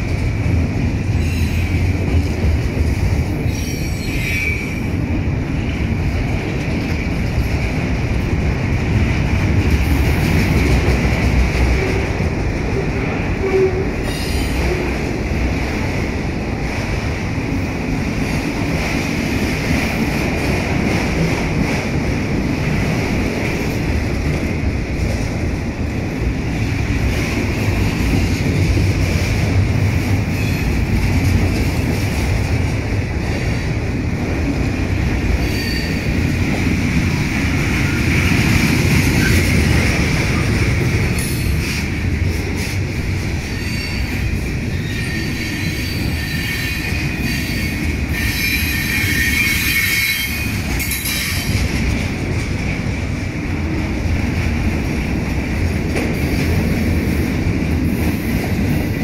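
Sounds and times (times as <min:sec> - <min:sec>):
freight train wheels rumbling on rails: 0:00.0 - 0:59.0
high wheel squeal: 0:03.5 - 0:04.9, 0:35.4 - 0:36.2, 0:43.5 - 0:51.5.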